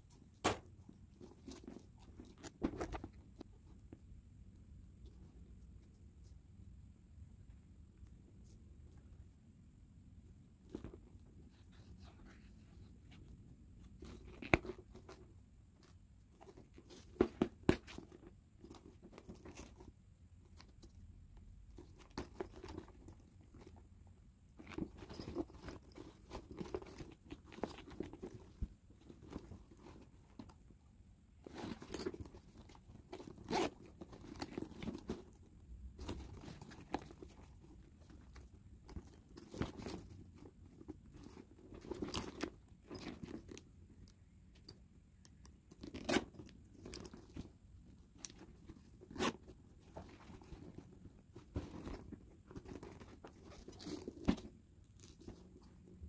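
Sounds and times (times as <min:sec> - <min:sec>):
leather bag rustling and crinkling: 0:00.6 - 0:03.5, 0:10.7 - 0:19.9, 0:21.8 - 0:23.8, 0:24.6 - 0:30.7, 0:31.4 - 0:43.6, 0:45.7 - 0:56.0.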